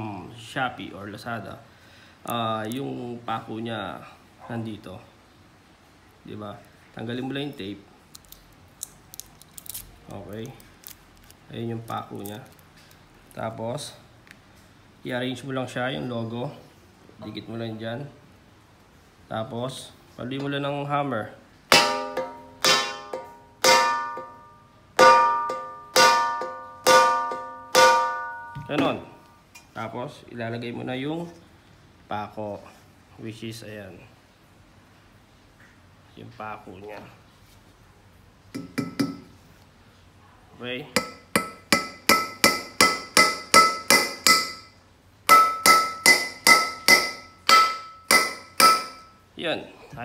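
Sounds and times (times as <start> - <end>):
hammer striking metal: 21.7 - 29.2, 38.6 - 39.3, 41.0 - 49.2
short metallic ring: 21.7 - 29.2
metal wok ringing: 21.7 - 29.6, 41.0 - 49.2.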